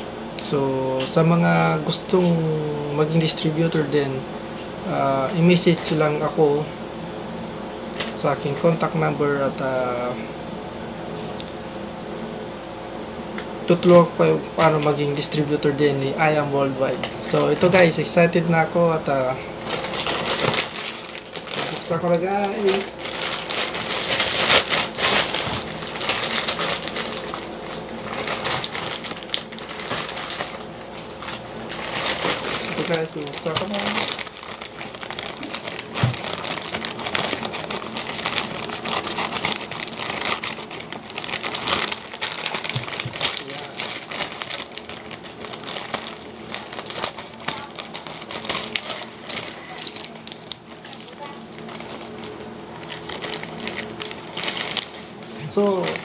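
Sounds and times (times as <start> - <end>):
plastic mailer bag crinkling: 17.2 - 56.0.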